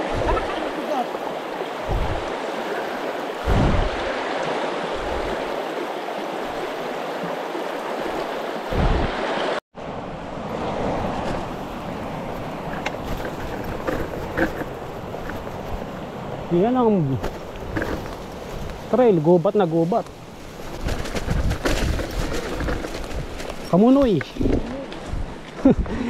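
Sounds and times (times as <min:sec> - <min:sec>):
stream water rushing: 0:00.0 - 0:20.8.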